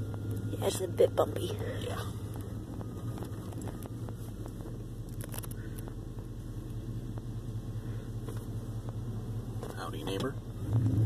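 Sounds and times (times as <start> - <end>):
engine and road hum in cab: 0.0 - 11.0
faint clicks in cab: 8.2 - 9.0, 9.6 - 10.4.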